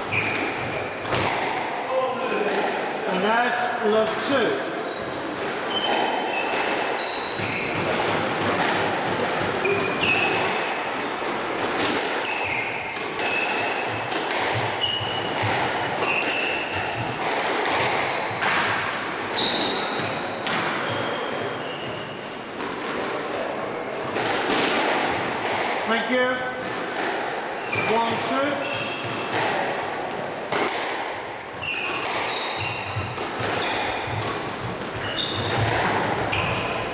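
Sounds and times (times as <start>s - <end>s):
shoes squeaking on wooden floor: 0.0s - 1.5s, 4.3s - 8.6s, 9.4s - 11.2s, 12.2s - 22.5s, 27.6s - 29.4s, 31.5s - 36.9s
squash ball knocks: 5.4s - 18.9s, 30.5s - 36.9s.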